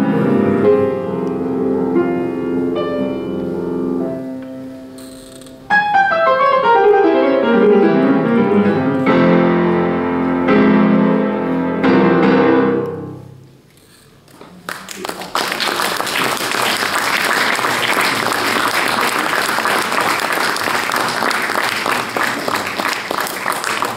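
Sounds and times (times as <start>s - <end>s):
grand piano classical music: 0.0s - 13.6s.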